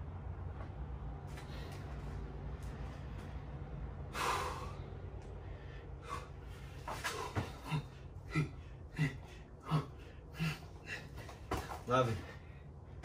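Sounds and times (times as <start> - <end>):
man breathing hard: 2.8 - 13.0.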